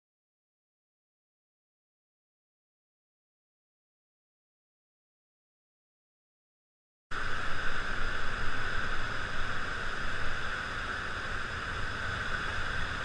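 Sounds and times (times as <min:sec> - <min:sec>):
whitewater rapids rushing: 0:07.2 - 0:13.0.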